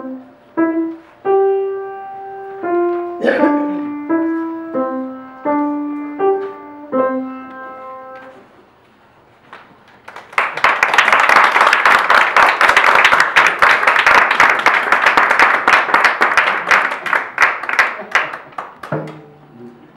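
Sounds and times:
audience applauding: 10.0s - 19.2s.

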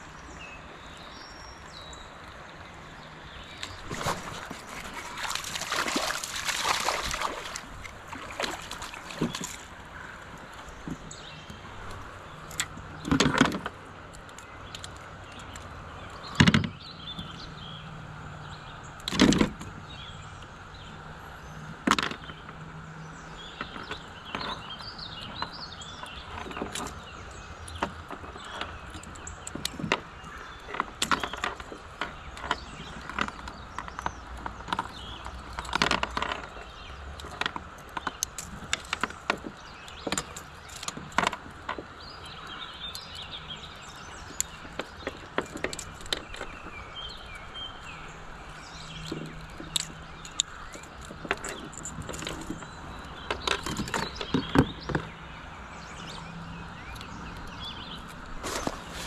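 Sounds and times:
water noise: 0.0s - 59.0s
pliers and hooks knocking on kayak: 3.6s - 9.7s, 10.6s - 13.8s, 16.3s - 17.4s, 19.0s - 19.8s, 21.7s - 22.6s, 23.4s - 43.2s, 43.9s - 47.3s, 48.7s - 55.3s.

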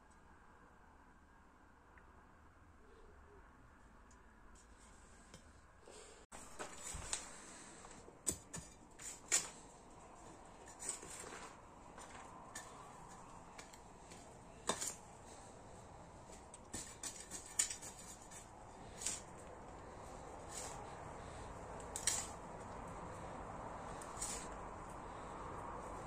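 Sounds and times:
metal trowel digging into soil: 12.5s - 22.5s, 23.2s - 25.3s.

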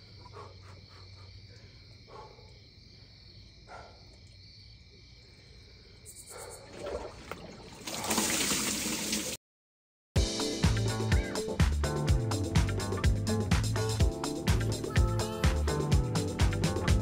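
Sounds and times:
crickets chirping: 0.0s - 7.6s
water sloshing and splashing: 6.6s - 9.4s.

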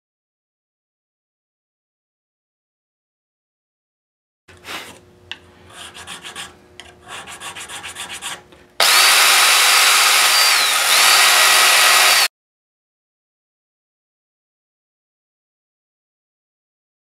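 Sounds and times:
hand file rasping: 5.7s - 12.3s
rotary power tool whining: 8.8s - 12.3s.

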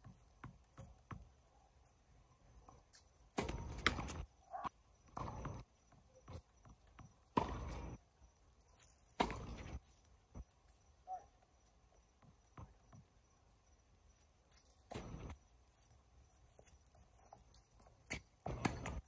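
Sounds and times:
tennis balls bouncing on court: 0.0s - 1.3s, 3.3s - 8.0s, 9.1s - 9.8s, 14.9s - 15.4s, 17.8s - 19.0s
rackets striking tennis balls: 3.3s - 5.6s, 6.9s - 8.0s, 8.8s - 9.8s, 14.5s - 15.4s, 17.2s - 19.0s.

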